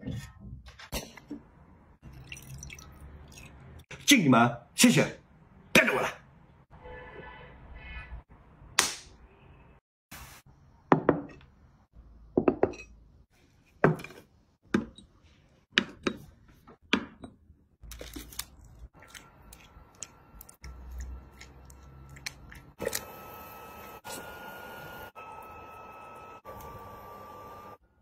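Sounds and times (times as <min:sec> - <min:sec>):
dishes knocking and clinking: 0:12.3 - 0:13.0.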